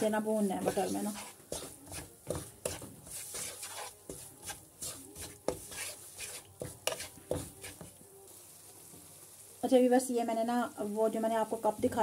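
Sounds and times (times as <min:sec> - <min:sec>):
spatula scraping a pan: 0:00.0 - 0:08.0.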